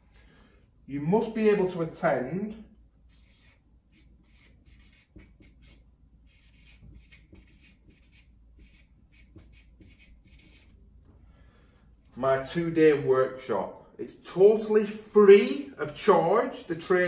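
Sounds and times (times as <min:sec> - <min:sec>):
marker pen scratching on paper: 0:03.1 - 0:10.8.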